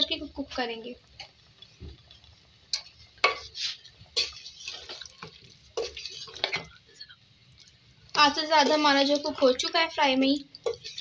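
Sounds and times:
wooden spatula scraping metal pot: 0:02.7 - 0:06.8, 0:10.6 - 0:11.0.

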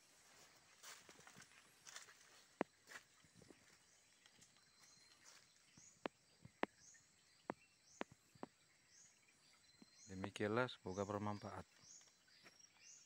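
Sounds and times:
twigs and leaves snapping underfoot: 0:00.8 - 0:06.2.

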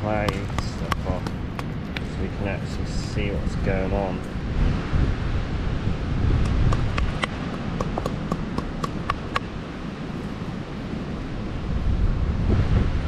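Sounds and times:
wind rumble on microphone: 0:00.0 - 0:13.0
hammer tapping on rock: 0:00.2 - 0:02.1, 0:06.4 - 0:09.5.

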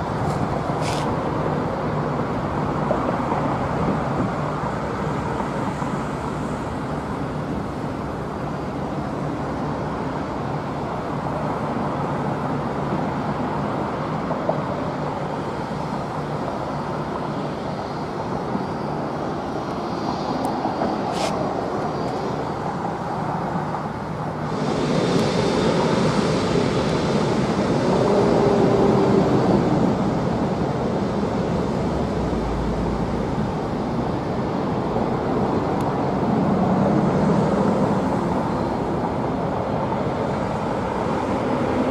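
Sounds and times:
loud jet noise: 0:00.0 - 0:02.8, 0:14.6 - 0:41.9
jet engines rumbling with whine: 0:00.0 - 0:41.9.

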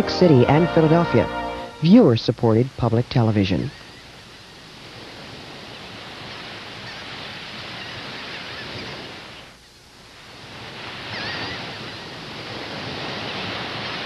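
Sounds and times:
ocean surf waves: 0:04.6 - 0:09.4, 0:10.2 - 0:14.0.

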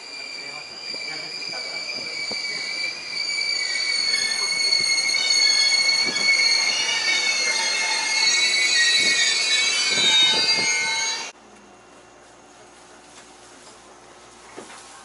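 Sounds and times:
train brakes squealing: 0:00.0 - 0:11.3
train pulling in: 0:00.0 - 0:11.4.

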